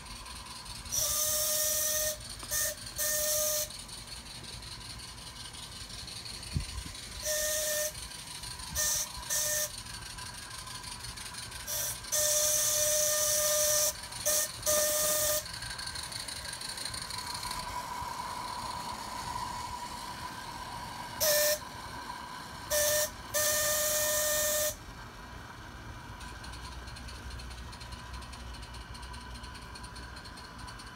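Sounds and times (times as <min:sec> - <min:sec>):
steady steam hiss: 0:00.0 - 0:26.2
steam whistle blasts: 0:00.7 - 0:03.9, 0:07.0 - 0:09.9, 0:11.6 - 0:15.7, 0:17.8 - 0:24.8.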